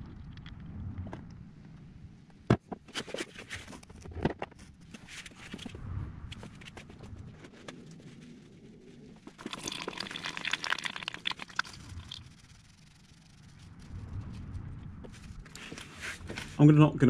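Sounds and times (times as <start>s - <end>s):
fluid trickling into plastic pan: 9.3s - 12.2s
fluid spattering with clicks: 9.3s - 12.3s.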